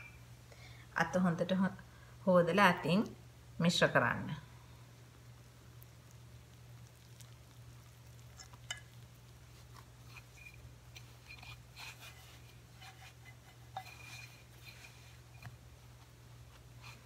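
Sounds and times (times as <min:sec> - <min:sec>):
steady low hum: 0:00.0 - 0:17.0
hands squishing bread dough: 0:05.6 - 0:17.0.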